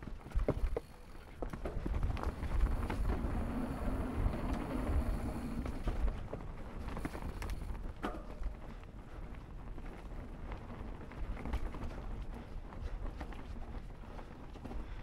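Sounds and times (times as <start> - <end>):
bike knocks and rattles: 0.0 - 3.6, 4.3 - 8.8
bike tyres rumbling on dirt: 0.0 - 15.0
wind on microphone: 1.7 - 9.9.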